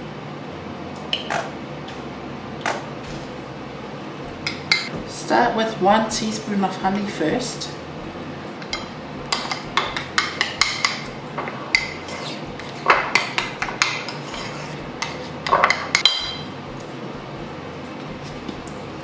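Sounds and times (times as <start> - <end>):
metal spoon clinking in ceramic bowl: 15.0 - 16.5.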